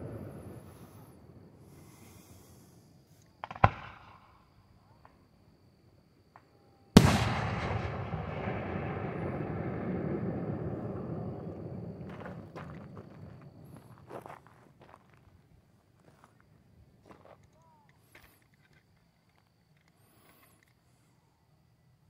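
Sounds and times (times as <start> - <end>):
faint fireworks pops: 3.2 - 4.4, 6.3 - 15.1
fireworks bangs: 3.4 - 4.4, 7.0 - 14.1
rumbling echo: 7.0 - 13.8.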